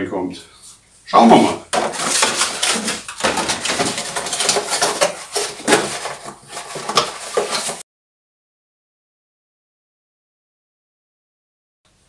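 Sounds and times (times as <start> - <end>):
hard plastic clattering and rustling: 1.7 - 7.8.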